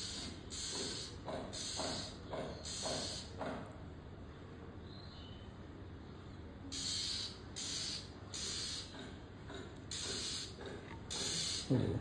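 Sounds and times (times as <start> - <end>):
bird hissing rasps: 0.0 - 3.3, 6.7 - 8.9, 9.9 - 11.7.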